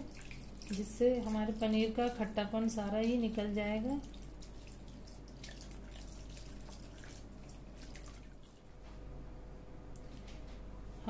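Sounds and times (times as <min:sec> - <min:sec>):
water trickling and splashing: 0:00.0 - 0:08.7.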